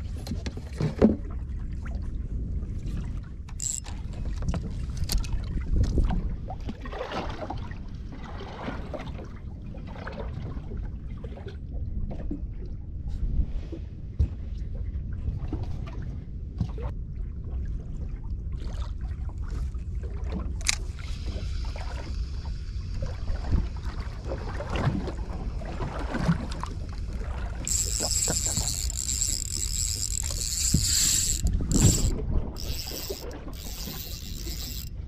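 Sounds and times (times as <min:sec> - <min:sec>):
water and wind around hull: 0:00.0 - 0:35.0
gear knocking on boat: 0:27.6 - 0:34.9.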